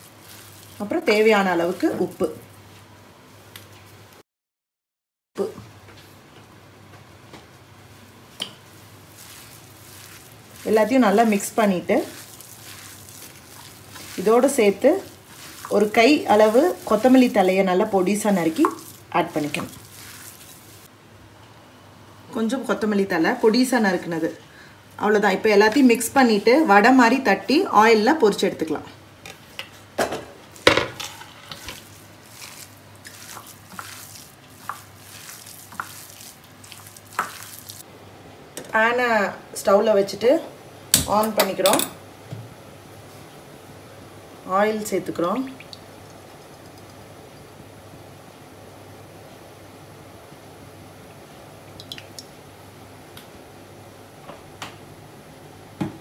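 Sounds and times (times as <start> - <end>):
oil crackling and hissing: 0.0 - 1.3, 8.7 - 20.9, 30.6 - 37.9
hand squelching wet mixture: 0.0 - 2.6, 8.6 - 20.9, 31.5 - 37.9.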